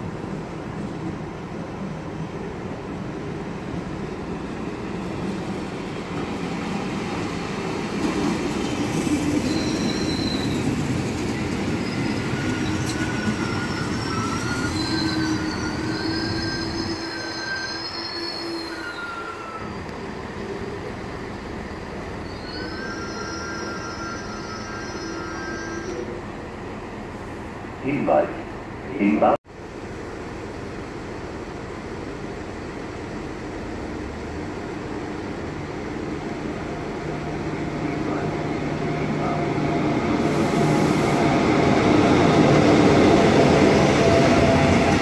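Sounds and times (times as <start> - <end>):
train passing rumble: 0.0 - 45.0
high squealing tones: 11.8 - 20.0, 22.2 - 26.1.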